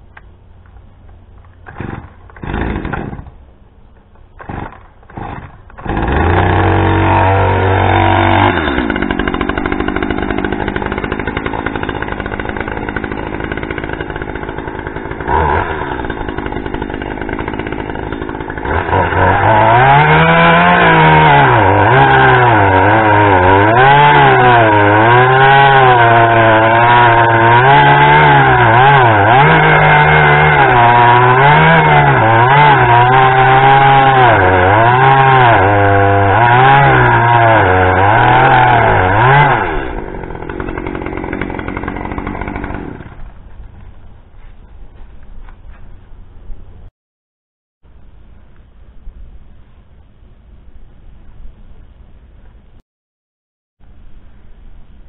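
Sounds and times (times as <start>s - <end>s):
chainsaw cutting log: 1.5s - 3.4s, 4.3s - 44.1s
chainsaw running: 1.6s - 3.4s, 4.4s - 44.1s.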